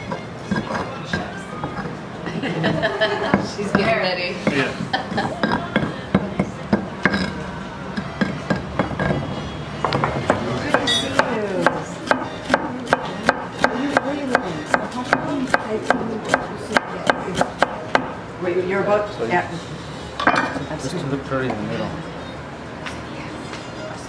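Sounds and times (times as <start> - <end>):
stone pestle scraping and knocking: 0.0 - 2.0, 5.2 - 17.7
knife chopping on wooden board: 9.9 - 18.2.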